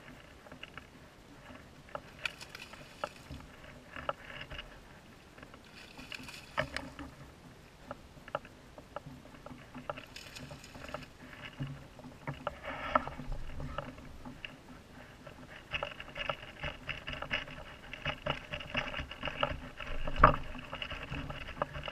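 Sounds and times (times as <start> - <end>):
kayak paddle splashing: 0.0 - 21.9.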